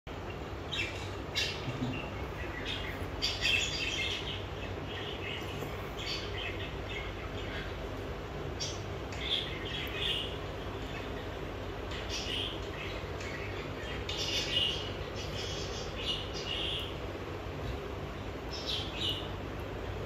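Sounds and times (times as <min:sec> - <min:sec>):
low background hum: 0:00.1 - 0:20.0
budgerigars chirping: 0:00.7 - 0:07.8, 0:08.6 - 0:17.0, 0:18.5 - 0:19.4.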